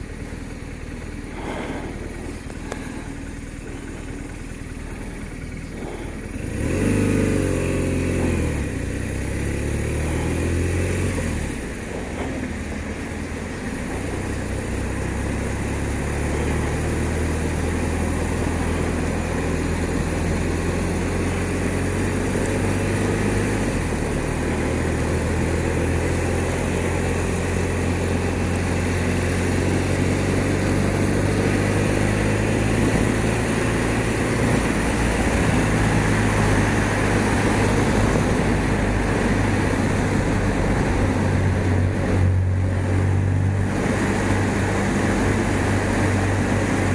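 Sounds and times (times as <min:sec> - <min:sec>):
motorcycle engine revving: 0:00.0 - 0:46.9
wind and road noise: 0:00.0 - 0:46.9.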